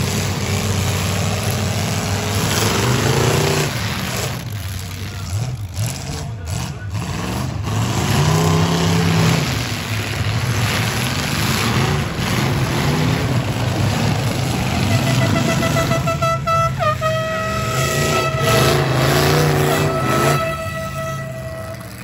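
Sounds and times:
car engines revving: 0:00.0 - 0:22.0
steady horn tone: 0:14.6 - 0:22.0.

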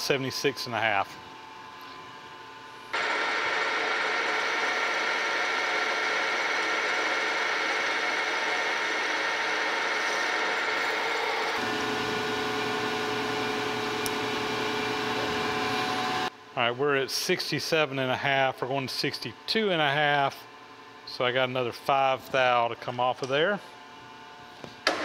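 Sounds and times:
metal lathe cutting steel: 0:03.0 - 0:16.3.

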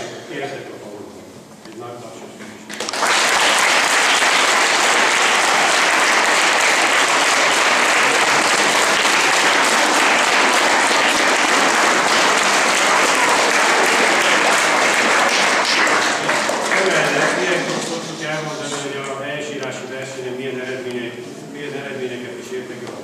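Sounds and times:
children applauding: 0:02.7 - 0:17.8.

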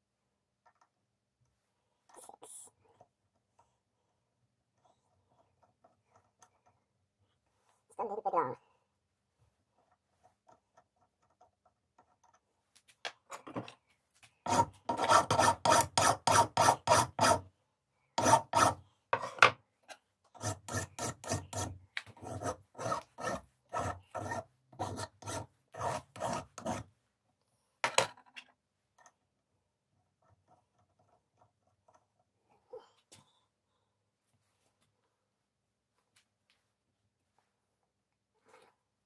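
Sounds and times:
hand file strokes: 0:14.3 - 0:17.5, 0:18.2 - 0:19.5, 0:20.3 - 0:27.0.

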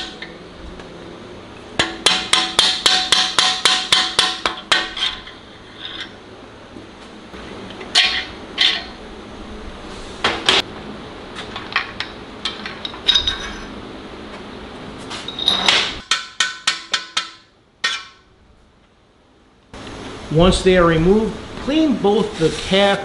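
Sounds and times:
metal bearing caps clinking: 0:11.4 - 0:13.8, 0:15.1 - 0:15.8.

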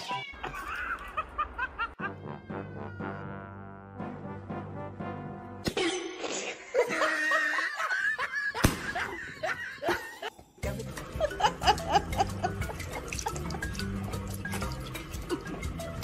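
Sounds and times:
people laughing: 0:00.3 - 0:02.3, 0:06.7 - 0:14.0
background music: 0:01.7 - 0:05.8, 0:06.7 - 0:16.0.

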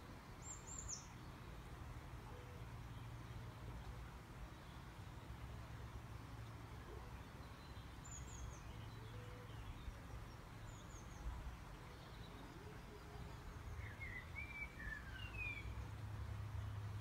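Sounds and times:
birds chirping: 0:06.7 - 0:16.0.

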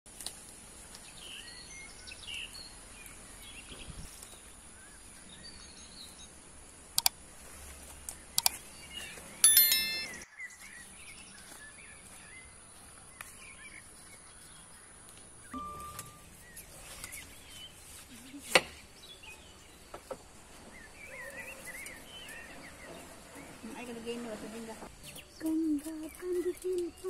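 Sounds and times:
sharp clicks: 0:07.0 - 0:07.2, 0:08.4 - 0:08.6.

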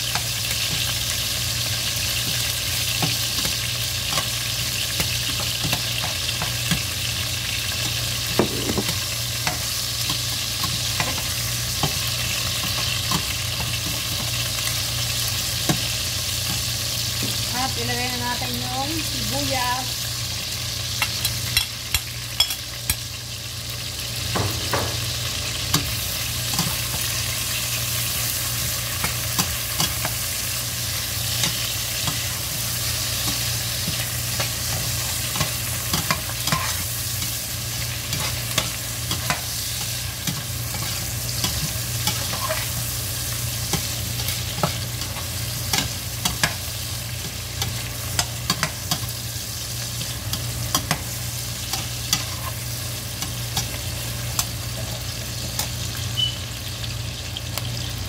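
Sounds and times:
chicken sizzling in oil: 0:00.0 - 0:58.0
metal utensil scraping pot: 0:40.2 - 0:42.8.

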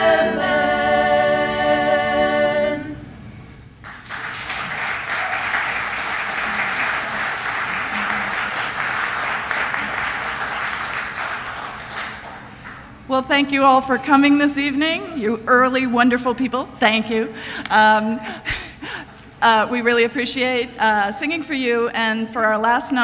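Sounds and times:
women's choir singing unaccompanied: 0:00.0 - 0:03.2
audience applauding: 0:03.8 - 0:13.0.

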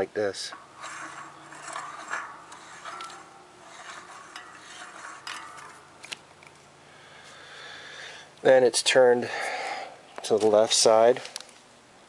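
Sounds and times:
metallic rubbing: 0:00.0 - 0:07.5
small metal clicks: 0:00.4 - 0:06.6.

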